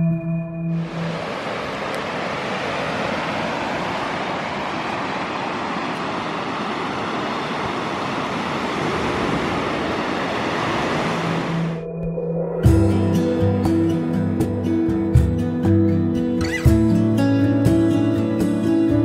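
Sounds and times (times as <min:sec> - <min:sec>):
waves breaking on shore: 0:00.7 - 0:11.8.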